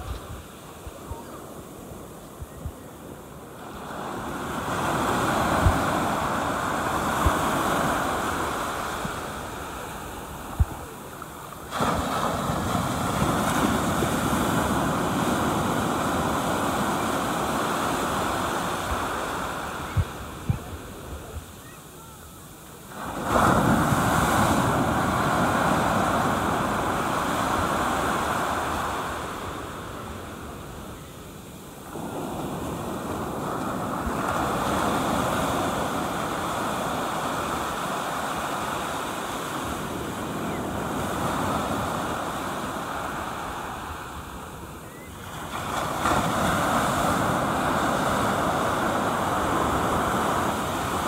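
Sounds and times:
surf breaking on beach: 3.5 - 22.0, 22.8 - 31.0, 31.7 - 51.0
foam washing up sand: 11.6 - 18.2.

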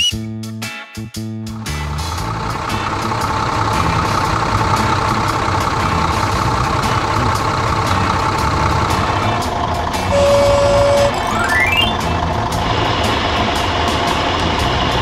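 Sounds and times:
cartoon tractor engine: 1.5 - 15.0
held high tone: 10.0 - 12.2.

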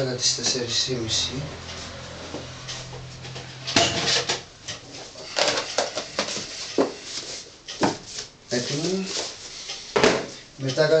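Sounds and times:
low steady hum: 0.0 - 5.9.

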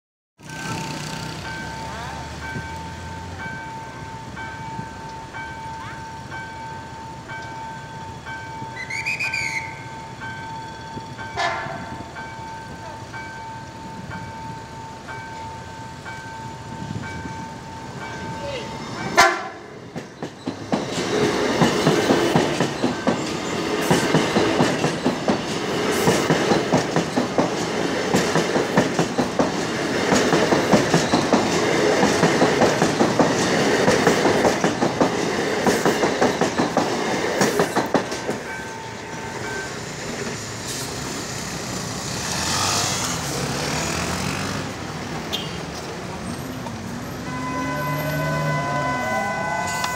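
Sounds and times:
street traffic noise: 0.4 - 49.9
train horn blast: 11.3 - 12.0, 19.2 - 19.7, 47.2 - 49.9
train wheels clickety-clack: 19.1 - 47.0.

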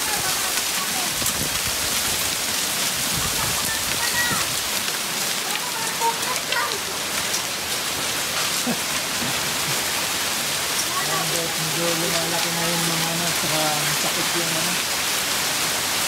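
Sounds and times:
hail and rain pelting down: 0.0 - 16.0.

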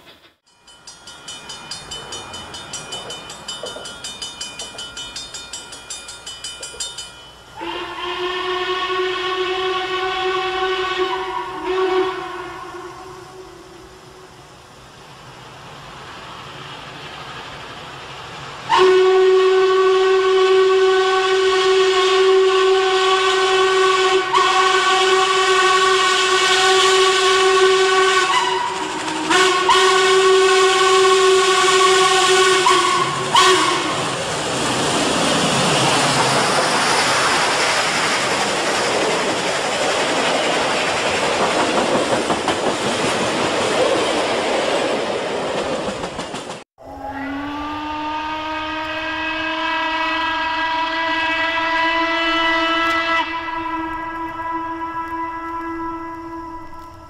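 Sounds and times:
steam train rushing by: 0.0 - 57.0
steam locomotive whistle: 7.5 - 14.6, 18.6 - 39.4, 46.8 - 57.0.

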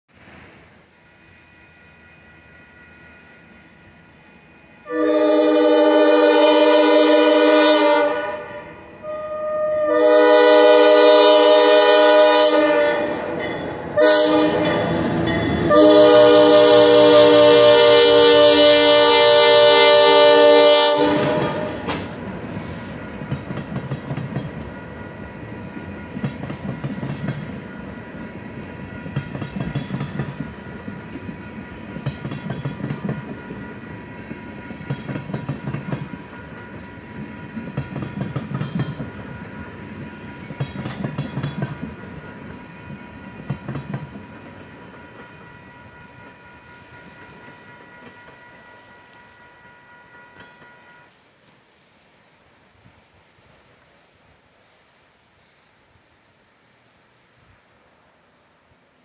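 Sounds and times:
low train rumble: 0.1 - 59.0
train horn: 4.8 - 23.0
train wheels clicking over rail joints: 21.0 - 48.7.

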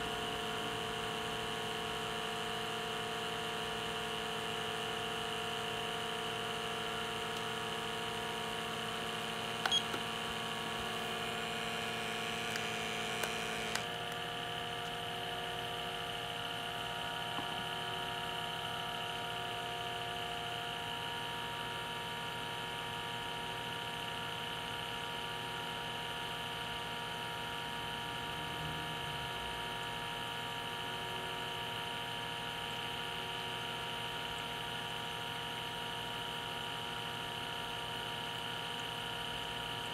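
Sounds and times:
vacuum pump whirring: 0.0 - 19.2
electrical hum: 0.0 - 20.8
clicks: 9.6 - 14.2.

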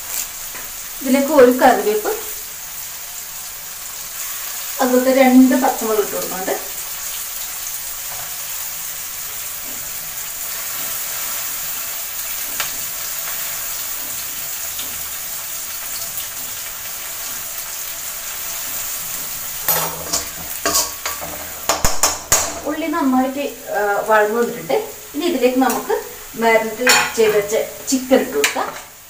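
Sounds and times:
onions sizzling in hot oil: 0.0 - 29.0
spoon clinking and scraping pan: 19.6 - 22.6, 26.7 - 27.5.

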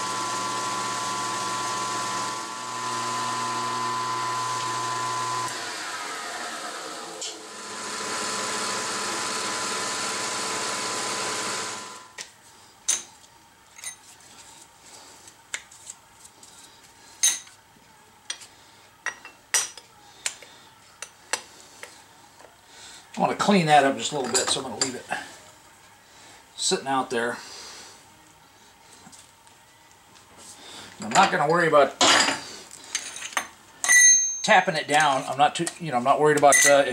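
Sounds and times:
spindle motor spinning down: 0.0 - 12.1.

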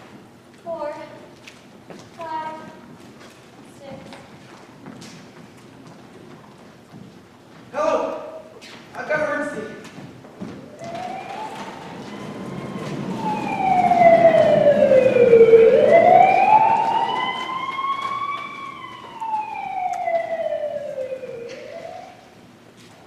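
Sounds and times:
emergency siren wailing: 10.6 - 22.5.

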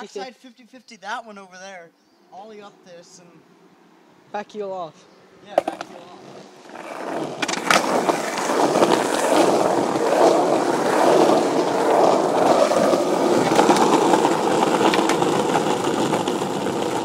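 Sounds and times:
skateboard wheels rolling on asphalt: 5.5 - 17.0
sharp skateboard clicks: 5.6 - 6.0, 6.6 - 17.0.

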